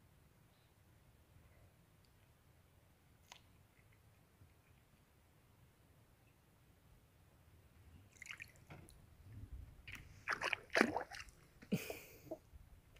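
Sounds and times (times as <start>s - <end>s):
sea water splashing: 9.8s - 11.4s.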